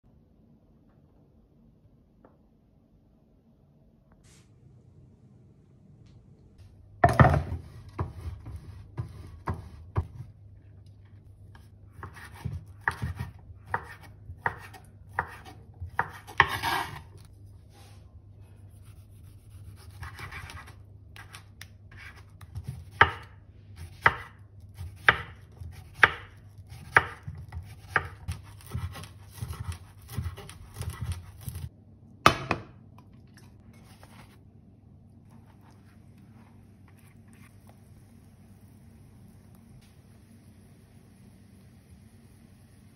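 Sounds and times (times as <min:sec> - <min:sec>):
knife chopping on cutting board: 0:07.0 - 0:10.2, 0:12.0 - 0:17.3, 0:19.2 - 0:31.7
knife scraping: 0:12.0 - 0:18.0.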